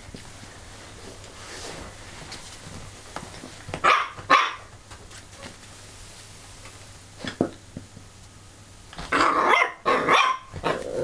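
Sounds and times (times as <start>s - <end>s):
puppy barking: 3.8s - 4.7s, 9.1s - 10.8s.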